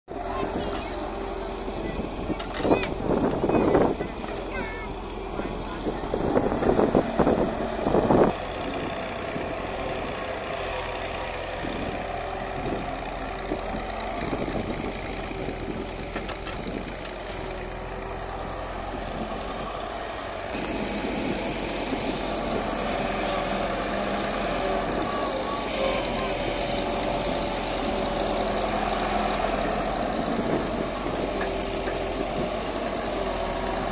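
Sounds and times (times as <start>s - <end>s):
excavator diesel engine and hydraulics: 0.1s - 33.9s.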